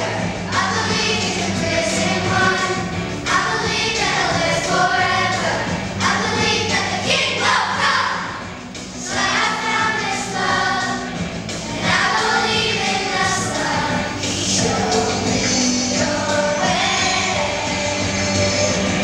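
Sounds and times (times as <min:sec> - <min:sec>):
children's choir singing: 0:00.0 - 0:19.0.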